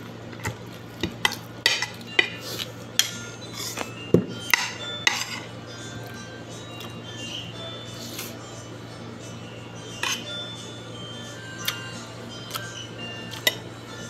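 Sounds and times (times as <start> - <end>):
cutlery clinking on a plate: 0.4 - 2.4, 3.0 - 5.5, 10.0 - 10.3.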